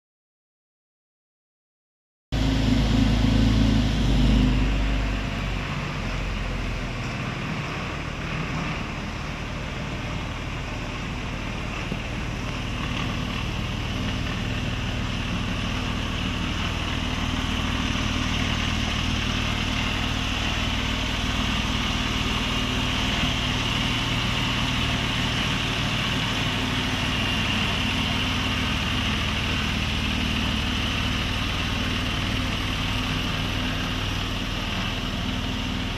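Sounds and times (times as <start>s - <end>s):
car engine idling: 2.4s - 35.9s.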